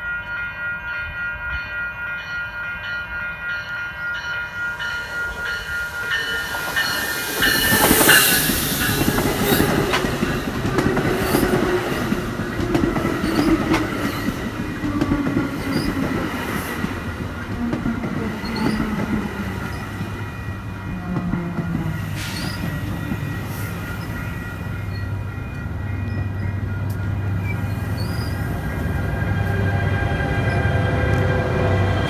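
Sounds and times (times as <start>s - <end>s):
train wheels rumbling on rail: 4.2s - 32.0s
wheel squeal: 27.4s - 28.5s.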